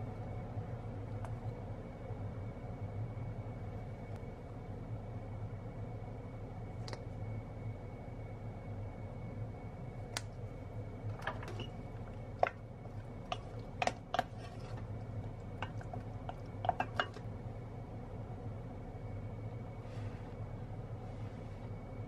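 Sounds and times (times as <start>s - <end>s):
steady low hum: 0.0s - 22.0s
wooden spoon knocking on pot: 15.6s - 17.2s.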